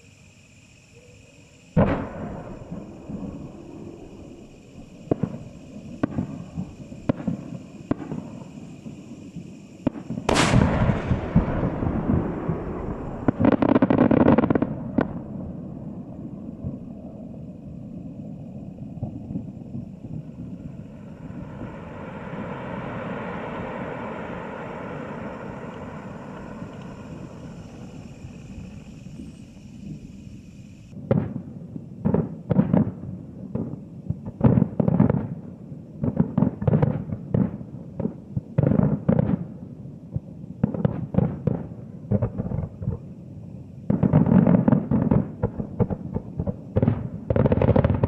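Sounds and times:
distant firework bursts: 0.0 - 39.7, 40.6 - 43.1, 43.8 - 48.0
firework crackling volley: 0.0 - 48.0
loud boom with rolling echo: 1.8 - 8.6, 9.4 - 17.3.

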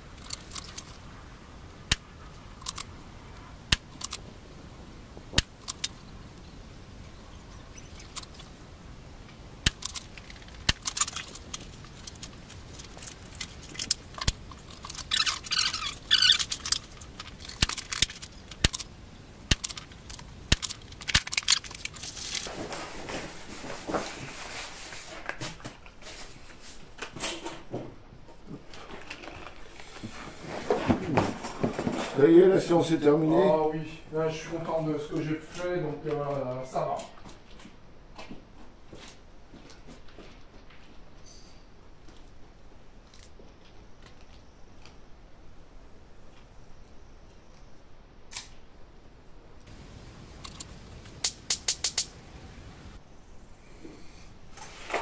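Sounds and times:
rustling handling noise: 9.7 - 33.0
sharp clicks and knocks: 19.5 - 22.5, 50.4 - 52.2.

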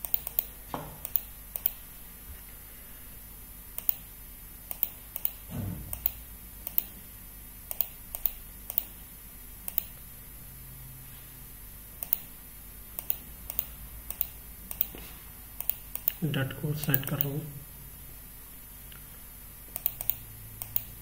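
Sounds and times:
computer mouse clicking: 0.0 - 1.8, 3.8 - 4.0, 4.7 - 6.9, 7.7 - 8.9, 9.7 - 10.0, 12.0 - 12.3, 13.0 - 15.0, 15.6 - 16.2, 16.8 - 17.3, 19.7 - 21.0.

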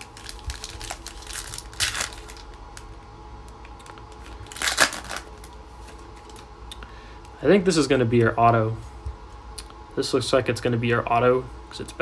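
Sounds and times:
foil wrapper crinkling and tearing: 0.0 - 3.0, 4.1 - 6.4.

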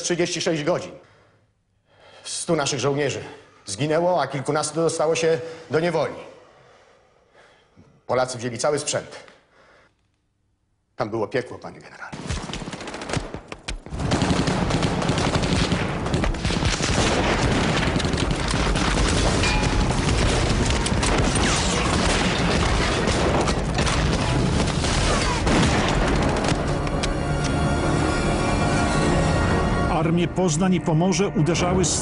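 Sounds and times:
rifle and machine-gun fire: 12.2 - 26.9
booms: 13.9 - 26.8.

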